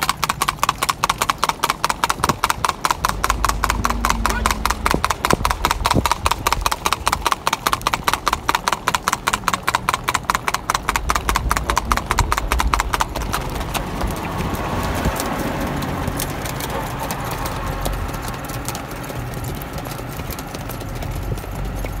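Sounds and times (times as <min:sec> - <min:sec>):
horse hooves clip-clopping: 0:00.0 - 0:22.0
steady rushing noise: 0:02.2 - 0:07.6, 0:10.6 - 0:21.7.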